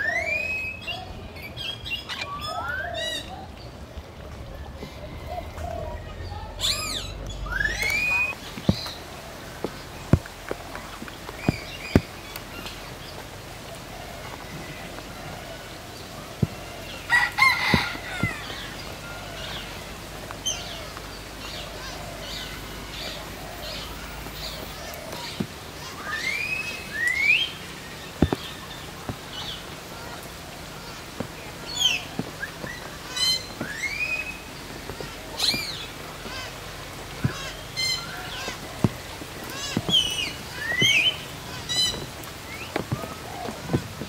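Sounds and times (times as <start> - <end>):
rising whistled bird calls: 0.0 - 3.5, 4.9 - 8.9
birds chirping: 0.0 - 44.0.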